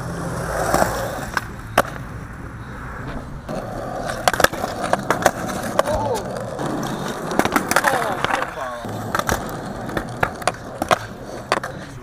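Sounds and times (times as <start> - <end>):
skateboard wheels rolling on concrete: 0.0 - 12.0
skateboard clacking on concrete: 0.4 - 2.1, 3.4 - 12.0.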